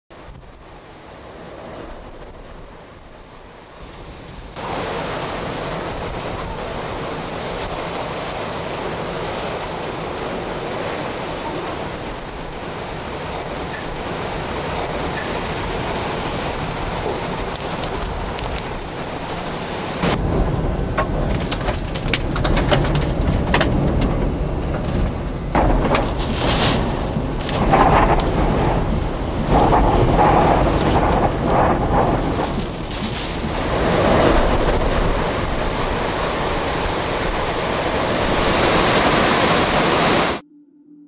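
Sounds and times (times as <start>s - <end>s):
driving rain: 0.1s - 40.4s
hurricane wind: 0.1s - 40.4s
crackling: 16.2s - 19.3s, 20.9s - 33.6s
deep rumble: 20.0s - 38.5s.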